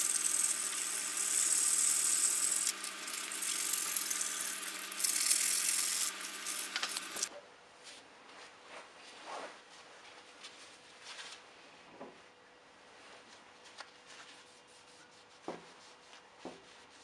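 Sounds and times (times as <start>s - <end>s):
steady hum: 0.0s - 7.3s.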